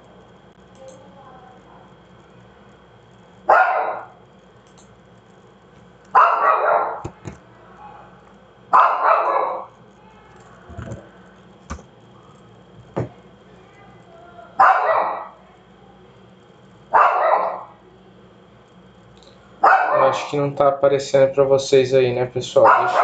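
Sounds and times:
dog barking: 0:03.5 - 0:04.2, 0:06.2 - 0:07.1, 0:07.7 - 0:09.7, 0:14.6 - 0:15.4, 0:16.9 - 0:17.8, 0:19.6 - 0:20.3, 0:22.6 - 0:23.0.

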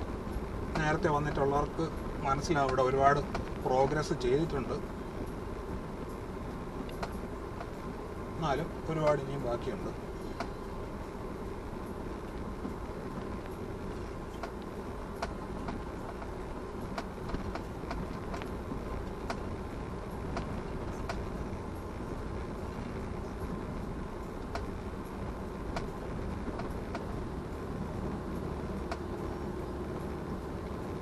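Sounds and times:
car engine and tyre noise: 0:00.0 - 0:31.0
sharp clicks and knocks: 0:13.9 - 0:18.6, 0:25.7 - 0:27.2.

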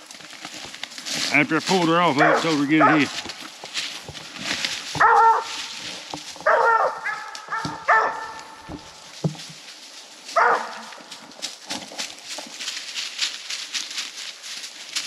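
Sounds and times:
dog barking: 0:02.2 - 0:03.2, 0:05.0 - 0:05.7, 0:06.4 - 0:08.7, 0:10.4 - 0:10.9.

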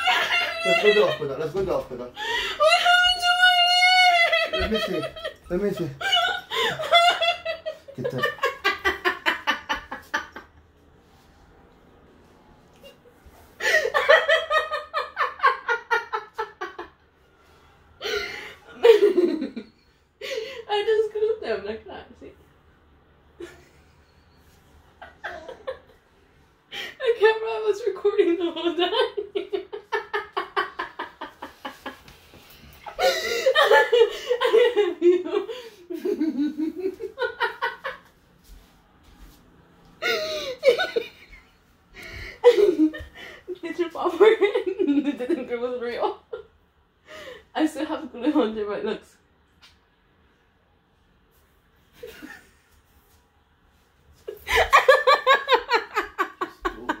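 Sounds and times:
woman laughing: 0:00.0 - 0:01.4, 0:02.2 - 0:10.4, 0:32.8 - 0:37.9, 0:42.0 - 0:45.8, 0:54.3 - 0:57.0.

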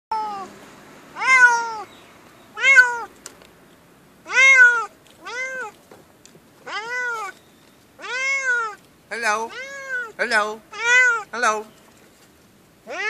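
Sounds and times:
cat meowing: 0:00.1 - 0:00.5, 0:01.2 - 0:01.9, 0:02.5 - 0:03.1, 0:04.2 - 0:05.8, 0:06.6 - 0:07.4, 0:08.0 - 0:11.3.

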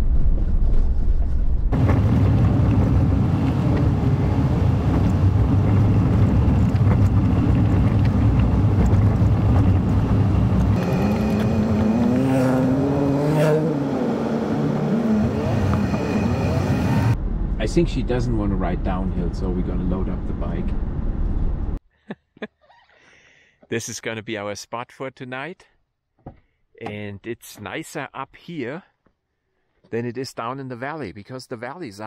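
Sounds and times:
tyre and road noise: 0:00.0 - 0:21.8
diesel engine under load: 0:01.7 - 0:17.5
higher note rising and falling: 0:10.0 - 0:17.2.

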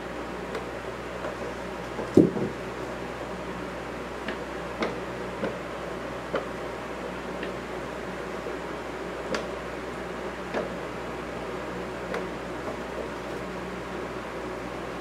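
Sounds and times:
steady low hum: 0:00.0 - 0:15.0
paws and claws tapping on boards: 0:01.2 - 0:02.6
cat body thumping on floor: 0:02.1 - 0:02.6.

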